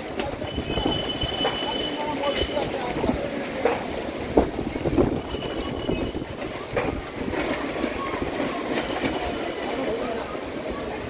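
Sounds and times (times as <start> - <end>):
wind rumbling on microphone: 4.0 - 7.4.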